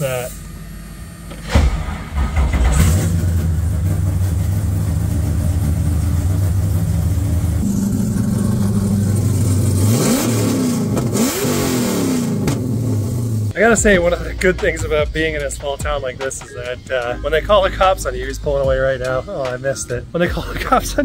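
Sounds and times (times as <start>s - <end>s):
engine throttle blips: 0.0s - 15.5s
engine idling loudly: 2.1s - 13.6s.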